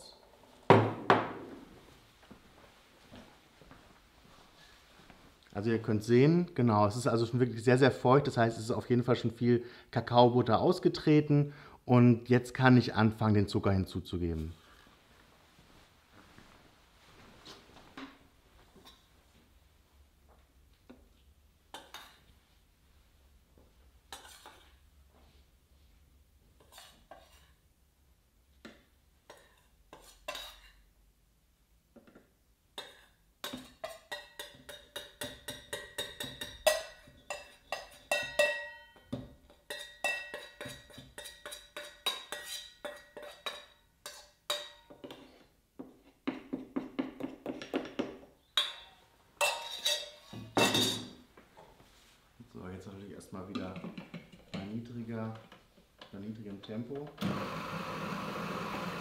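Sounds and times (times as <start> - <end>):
spoon scraping metal bowl: 24.1 - 24.8, 26.6 - 27.6, 29.3 - 30.8, 39.6 - 45.4, 48.6 - 51.0
metal bowls clattering: 32.8 - 45.2, 48.6 - 51.2.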